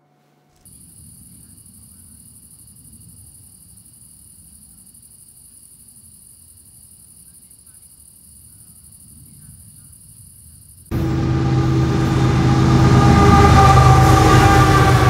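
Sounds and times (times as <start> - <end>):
crickets trilling: 0.6 - 10.9
low steady rumble: 10.9 - 15.0.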